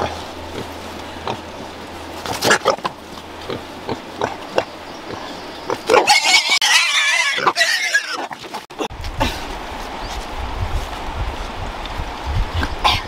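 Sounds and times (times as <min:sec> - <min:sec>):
pigs grunting: 0:00.0 - 0:01.6, 0:02.2 - 0:08.4
pig squealing: 0:04.2 - 0:08.4.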